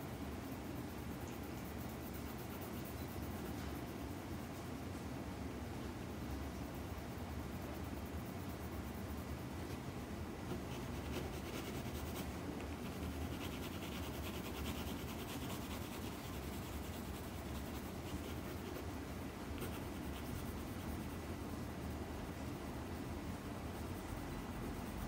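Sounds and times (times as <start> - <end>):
steady low hum: 0.0 - 25.0
pencil shading on paper: 10.5 - 18.8.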